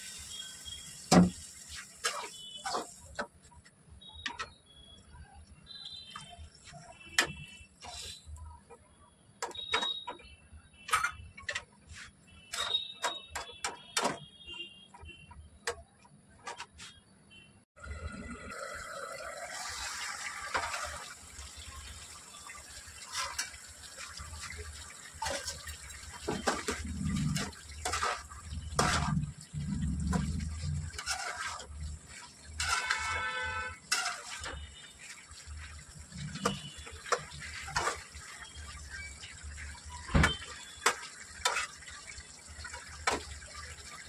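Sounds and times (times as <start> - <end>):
spatula scraping a pan: 1.7 - 3.3, 6.6 - 8.4, 11.5 - 13.1, 23.1 - 23.6, 25.2 - 35.6, 36.2 - 38.6, 40.8 - 42.0
thick gravy sloshing: 22.8 - 43.9.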